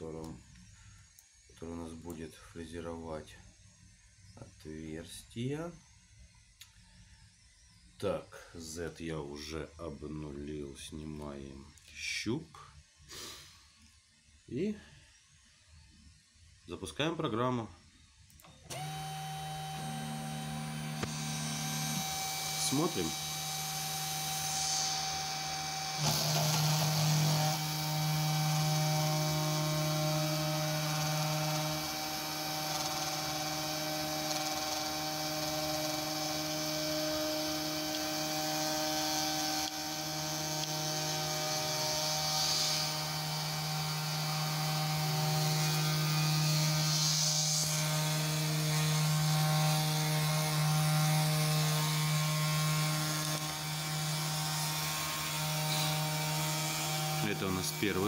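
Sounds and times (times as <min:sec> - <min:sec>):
router spindle hum: 0:18.2 - 0:58.0
stepping motor tones: 0:18.4 - 0:58.0.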